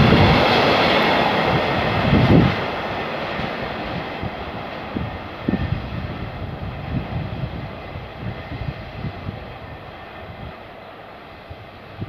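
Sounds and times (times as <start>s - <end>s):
freight train rolling: 0.0s - 12.0s.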